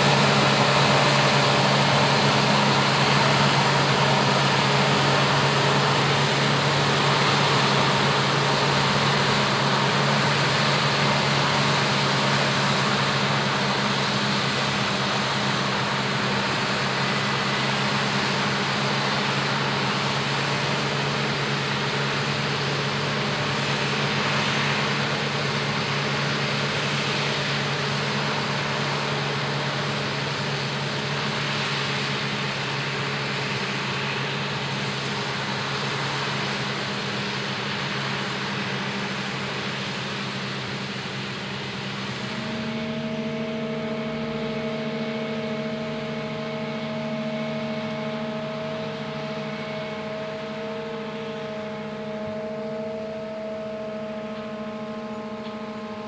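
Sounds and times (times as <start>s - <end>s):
forage harvester engine drone: 0.0s - 56.0s
high whining tones: 41.4s - 56.0s.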